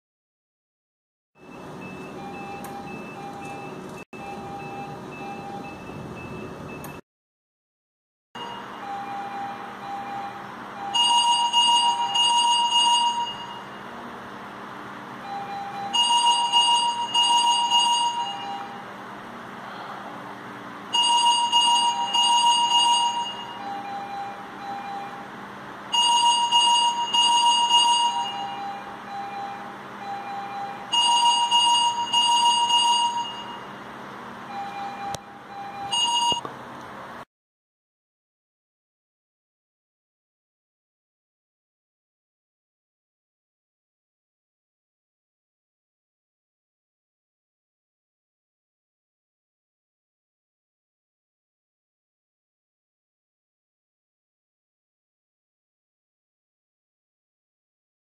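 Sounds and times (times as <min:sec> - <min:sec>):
monitor alarm high beeps: 0:01.4 - 0:07.0, 0:08.4 - 0:14.0, 0:15.2 - 0:18.9, 0:20.9 - 0:33.8, 0:34.4 - 0:36.4.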